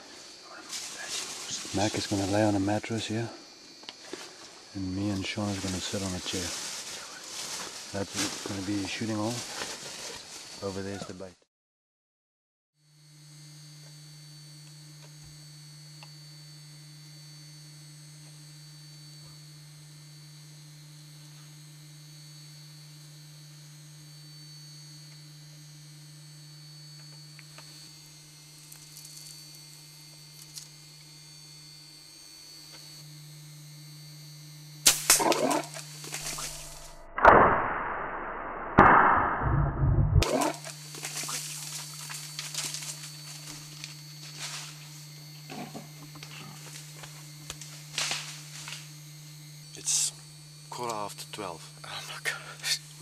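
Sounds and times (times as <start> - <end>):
electrical hum: 0.0 - 11.4, 12.8 - 53.0
bow shot: 34.8 - 40.3
animal bolting commotion: 35.1 - 35.8, 40.2 - 41.4.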